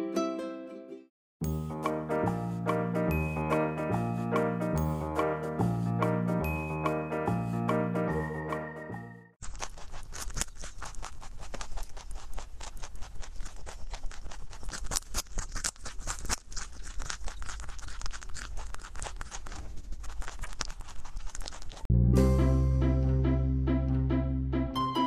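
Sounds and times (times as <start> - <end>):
rabbit chewing carrot: 9.4 - 21.9.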